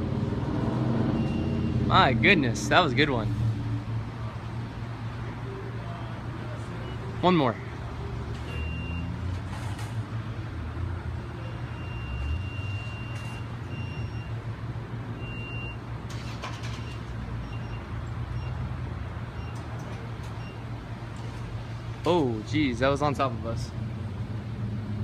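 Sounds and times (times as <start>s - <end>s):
vehicle engines humming: 0.0s - 25.0s
faint high-pitched beep: 1.2s - 1.8s, 8.5s - 9.1s, 11.4s - 14.4s.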